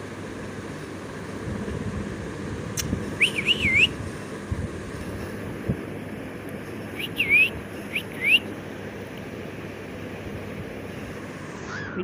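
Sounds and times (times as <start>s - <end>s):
cockatiel whistled calls: 3.2s - 4.0s, 7.0s - 8.5s.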